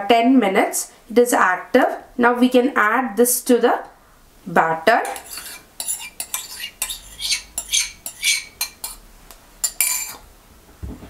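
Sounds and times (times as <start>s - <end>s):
metal spoon scraping a bowl: 5.0s - 9.0s, 9.6s - 10.3s.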